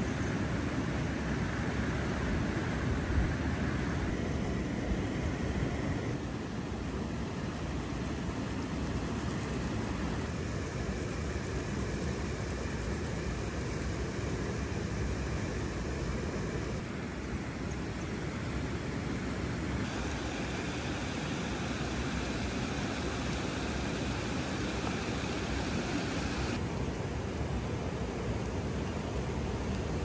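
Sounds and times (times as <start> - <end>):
river water rushing over weir: 18.2 - 30.0.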